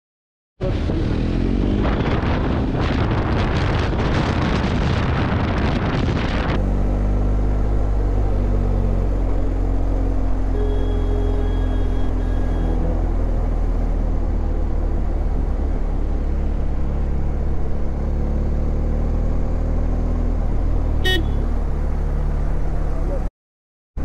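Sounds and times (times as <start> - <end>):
horn beep: 10.5 - 12.9, 21.0 - 21.5
motorcycle engine rumble: 20.1 - 23.3.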